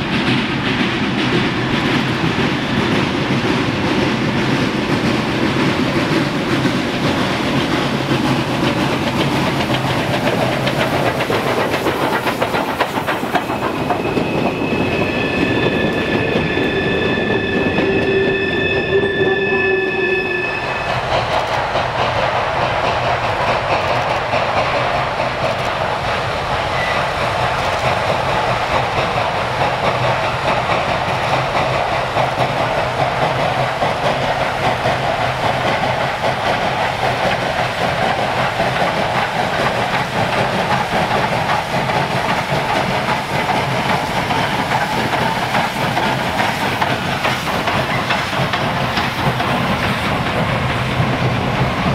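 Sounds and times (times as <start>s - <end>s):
train wheels clicking over rail joints: 0.0s - 18.8s, 20.6s - 51.9s
steam locomotive heavy exhaust: 0.0s - 51.9s
high squeal: 13.3s - 21.4s, 26.7s - 27.2s.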